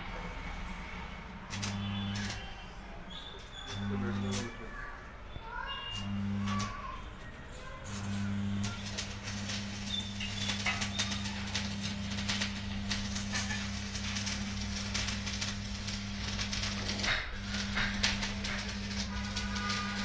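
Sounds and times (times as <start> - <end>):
electric motor hum: 1.6 - 2.4, 3.8 - 4.5, 6.0 - 6.8, 7.9 - 20.0.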